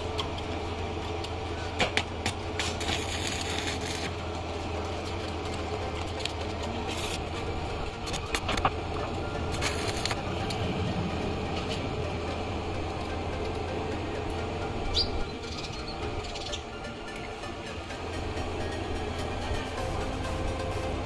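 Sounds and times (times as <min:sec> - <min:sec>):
welding arc crackling and sizzling: 0:00.0 - 0:13.7
steady low hum: 0:00.0 - 0:21.0.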